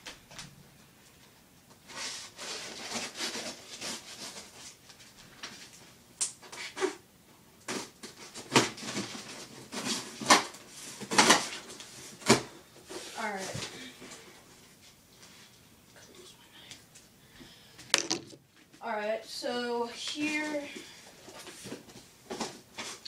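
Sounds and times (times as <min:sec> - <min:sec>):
cardboard scratching and rustling: 0:01.9 - 0:04.7.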